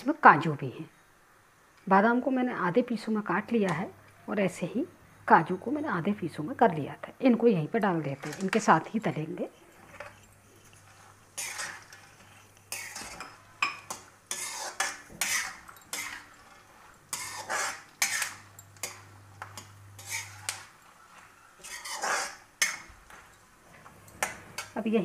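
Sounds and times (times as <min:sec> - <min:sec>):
metal spoon scraping a pan: 0:07.8 - 0:24.8.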